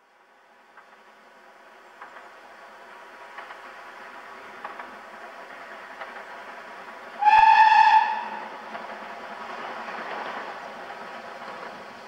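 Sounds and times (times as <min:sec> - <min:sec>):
steam whistle blast: 0:07.2 - 0:08.5.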